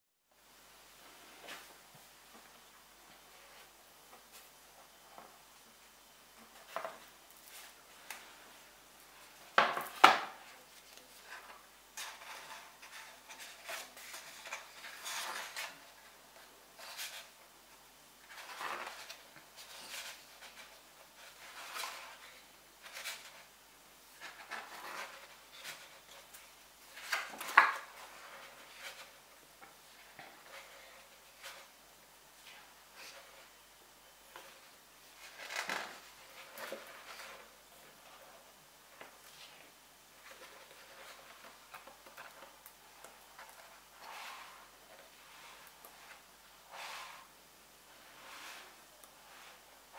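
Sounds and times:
pages swishing and rustling: 39.2 - 47.4, 48.0 - 49.9.

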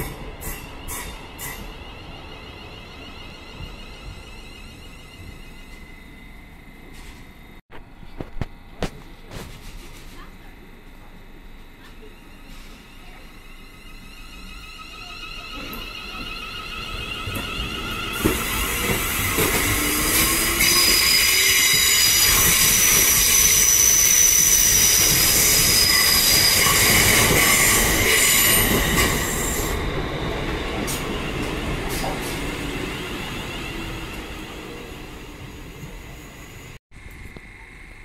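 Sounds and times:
high-pitched train squeal: 0.0 - 7.3, 11.9 - 36.8
train wheels on rails: 15.4 - 37.3.

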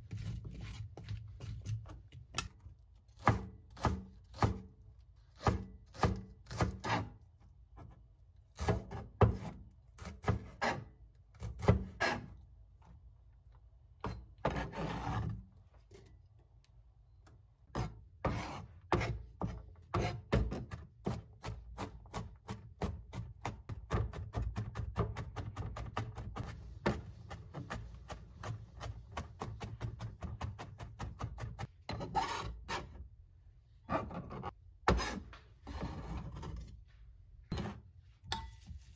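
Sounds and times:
knife chopping on plastic board: 3.1 - 7.1, 8.6 - 10.8
knife scraping board: 5.4 - 7.2, 8.6 - 12.4, 14.1 - 15.4, 17.7 - 20.6, 31.4 - 33.0, 33.8 - 36.8, 37.5 - 37.9.

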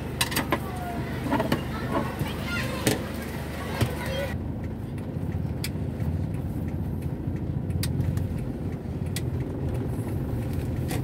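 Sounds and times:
car engine and tyres rumbling: 0.0 - 11.0
sharp ticks: 4.3 - 10.9.

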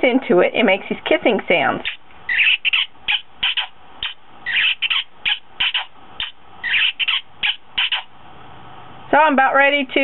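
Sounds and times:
recorded kissing smacks from toy: 3.4 - 7.2, 7.8 - 8.1.

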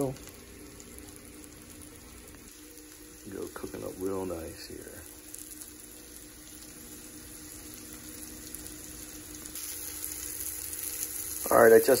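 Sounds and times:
fish sizzling in a frying pan: 0.0 - 12.0.

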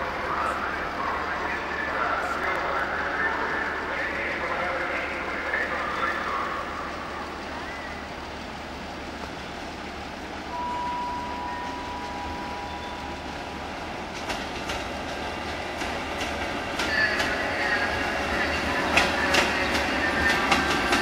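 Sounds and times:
train rumbling: 0.0 - 21.0
wheels clicking over rail joints: 13.8 - 21.0.

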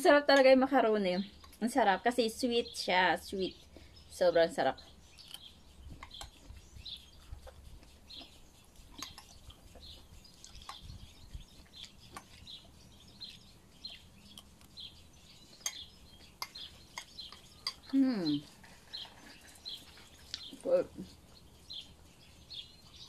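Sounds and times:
small birds chirping: 0.0 - 23.0
person eating: 5.1 - 10.8.

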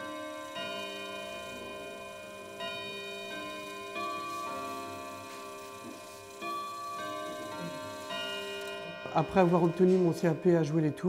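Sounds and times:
ringing bell-like tones: 0.0 - 11.0.

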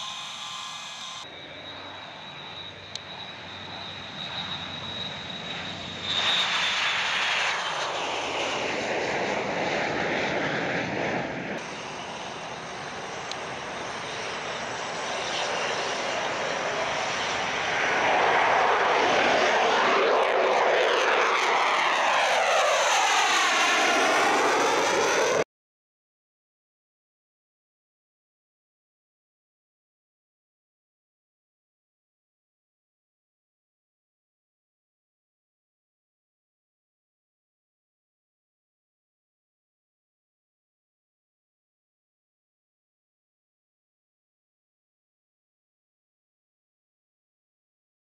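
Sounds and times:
jet engines whining: 0.0 - 25.4
jet engine rushing roar: 0.0 - 25.5.

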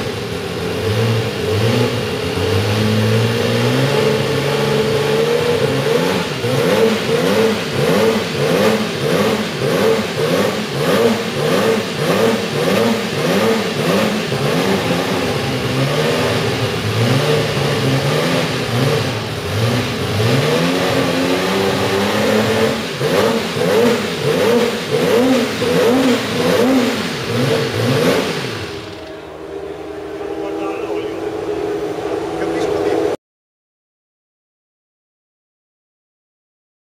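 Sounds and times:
race car engine revving: 0.0 - 33.2.

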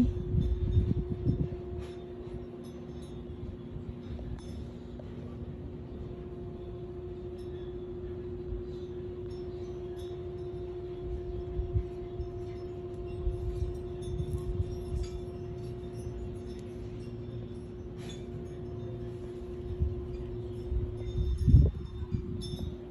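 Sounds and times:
low rumble in gusts: 0.0 - 2.5, 18.4 - 22.9
low hum with higher tone: 0.0 - 22.9.

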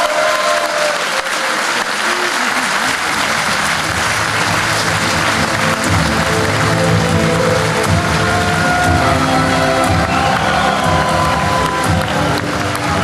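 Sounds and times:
audience applauding: 0.0 - 13.0
music: 3.2 - 13.0.

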